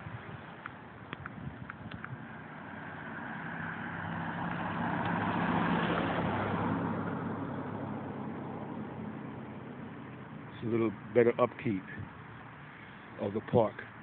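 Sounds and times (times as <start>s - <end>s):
car passing: 1.7s - 14.0s.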